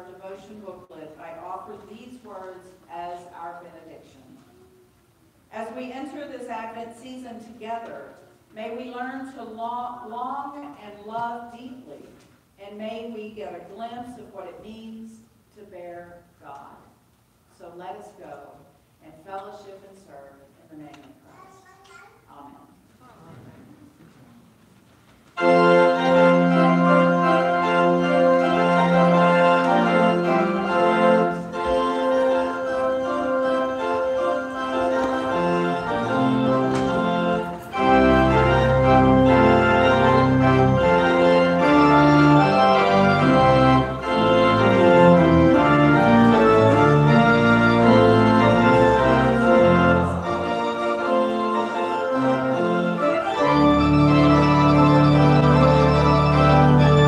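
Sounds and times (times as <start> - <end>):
deep organ pedal bass notes: 25.4 - 57.0
pipe organ chords: 25.4 - 57.0.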